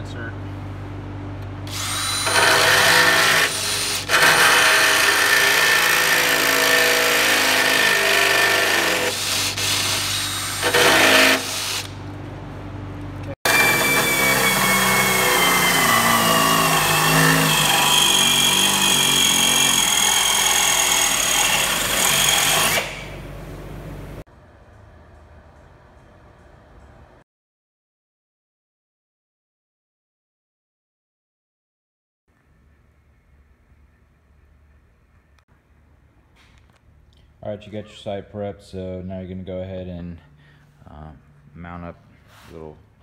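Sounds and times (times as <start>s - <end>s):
power drill boring sheet metal: 1.7s - 11.9s, 13.5s - 23.2s.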